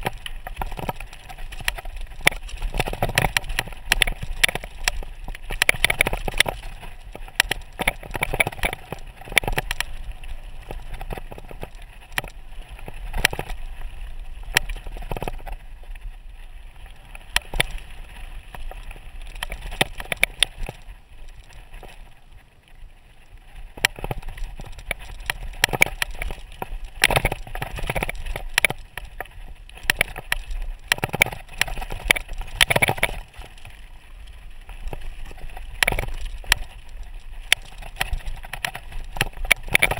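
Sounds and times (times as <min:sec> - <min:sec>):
bike rattling over gravel: 0:00.0 - 0:39.9.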